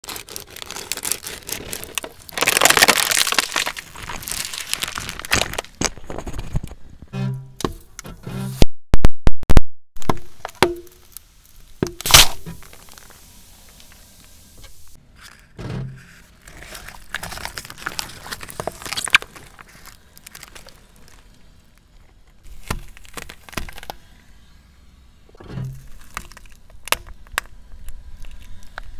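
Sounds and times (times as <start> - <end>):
plastic cups crushed by car tyre: 0.0 - 6.8, 11.8 - 13.9, 16.0 - 21.3, 22.4 - 24.0, 25.6 - 28.9
heavy crunch: 0.0 - 8.7.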